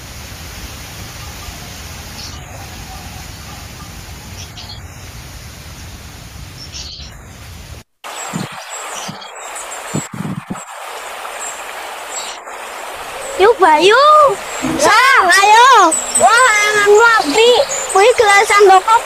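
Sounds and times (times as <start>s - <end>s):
rushing background: 8.1s - 19.0s
low knocks: 14.5s - 15.4s.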